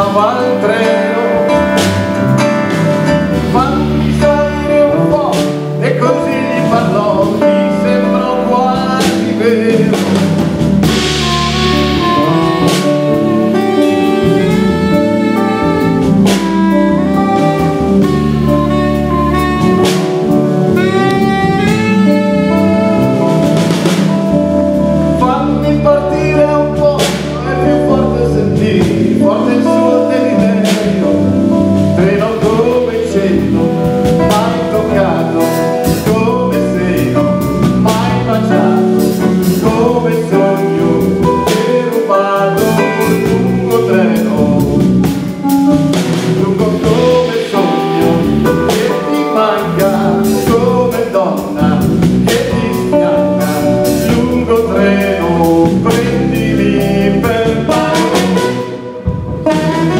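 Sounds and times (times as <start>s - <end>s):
drum kit: 0.0s - 59.9s
electric guitars: 0.0s - 59.9s
man singing lead: 0.0s - 59.9s.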